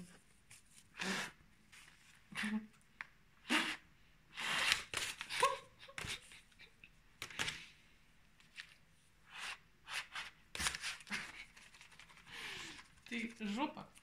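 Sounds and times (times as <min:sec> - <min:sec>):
breathy puffs through paper tube: 0:00.9 - 0:01.4, 0:03.4 - 0:06.4, 0:09.2 - 0:13.0.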